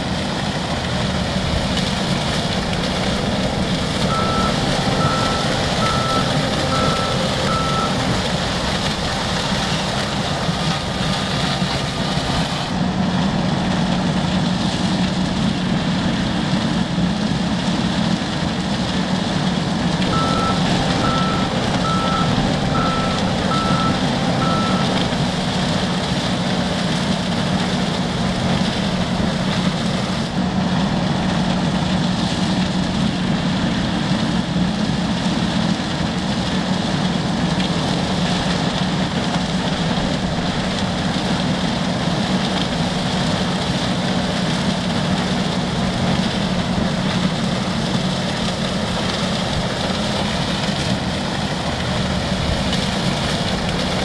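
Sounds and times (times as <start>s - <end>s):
combine harvester drone: 0.0s - 54.0s
reversing alarm beeps: 3.9s - 8.4s, 20.1s - 25.3s.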